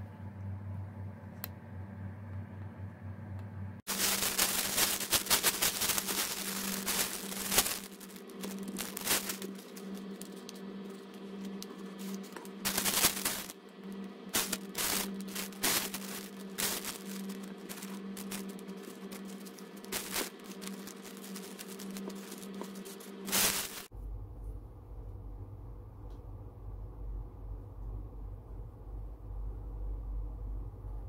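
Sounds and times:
steady low hum: 0.0s - 31.0s
pom-poms rustling and clicking: 3.9s - 13.6s, 14.4s - 23.9s.

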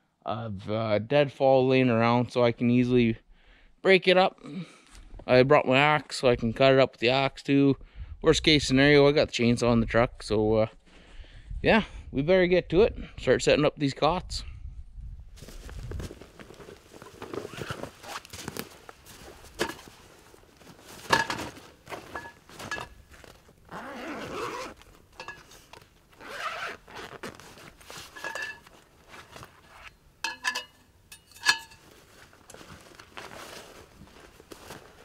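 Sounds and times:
rustling: 15.4s - 35.0s
zipping: 17.2s - 18.5s, 23.7s - 24.9s, 26.1s - 28.2s
metal frame clicking and clinking: 25.2s - 25.8s, 28.1s - 28.8s, 30.2s - 31.9s.

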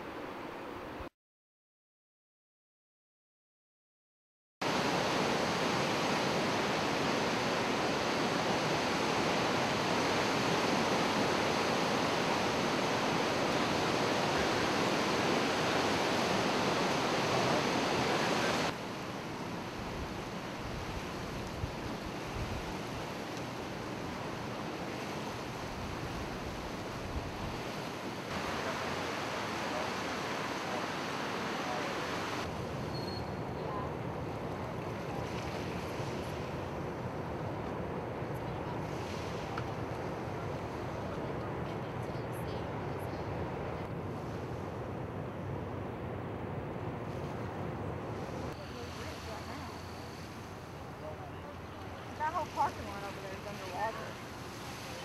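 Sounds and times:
floodwater rushing: 4.6s - 32.8s, 48.3s - 55.0s
wind rumbling on microphone: 4.7s - 51.0s.

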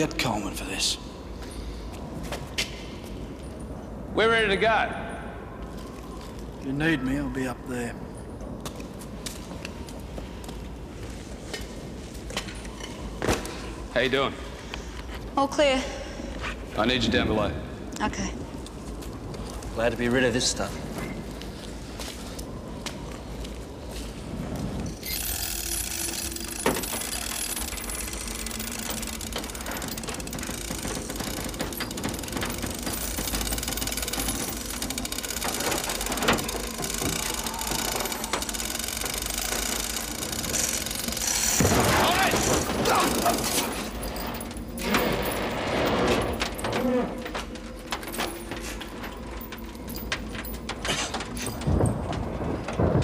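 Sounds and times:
steady low background noise: 0.0s - 53.0s
fast mechanical clatter: 25.0s - 46.4s.

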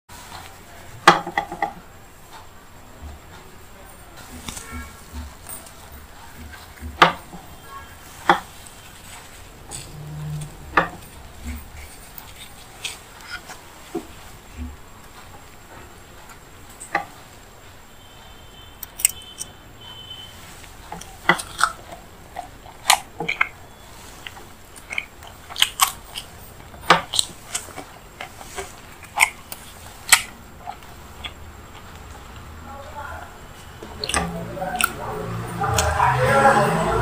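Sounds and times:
chewing crunches and mouth clicks: 20.8s - 32.6s, 33.4s - 36.0s.

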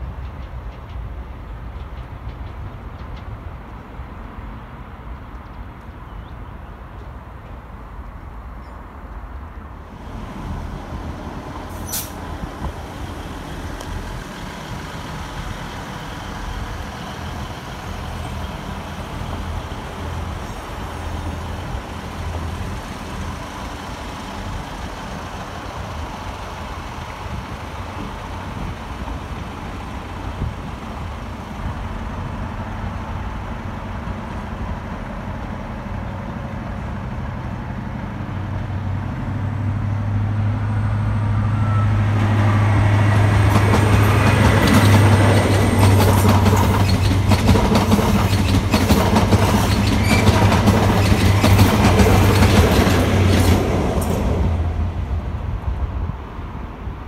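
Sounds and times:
distant diesel train engine: 0.0s - 57.0s
diesel engine low drone: 9.1s - 48.7s
wheels clattering over rail joints: 43.4s - 54.5s.

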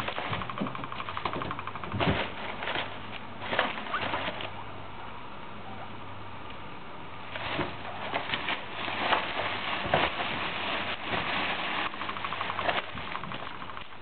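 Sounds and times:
guinea pig chattering teeth: 0.0s - 2.0s
rustling in animal cage: 0.0s - 4.7s, 7.2s - 14.0s.

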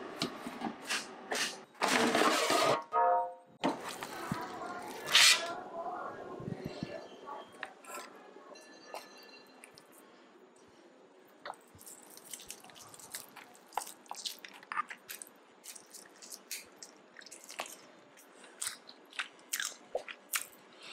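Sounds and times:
wet squishy chewing: 11.4s - 20.6s.

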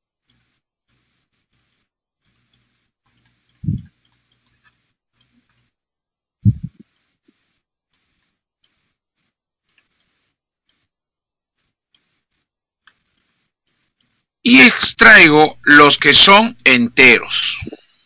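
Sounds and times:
stylus scratching on tablet: 0.3s - 5.5s, 6.5s - 14.3s.

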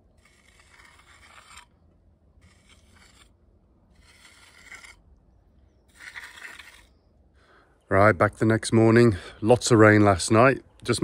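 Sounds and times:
float scraping wet concrete: 0.0s - 1.8s, 2.4s - 5.1s, 5.8s - 7.1s.

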